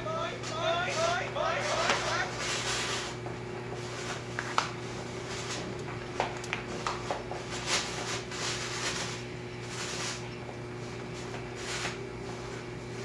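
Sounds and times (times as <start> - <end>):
low hum and hiss: 0.0 - 13.0.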